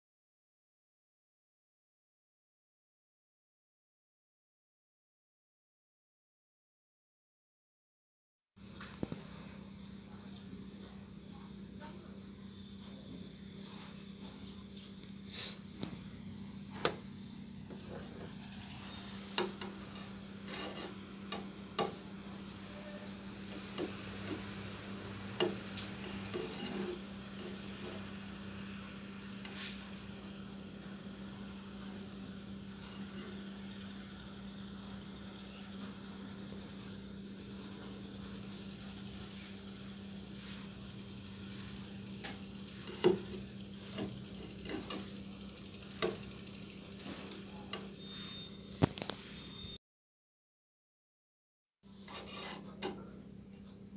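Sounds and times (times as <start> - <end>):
steady low hum: 8.6 - 49.8.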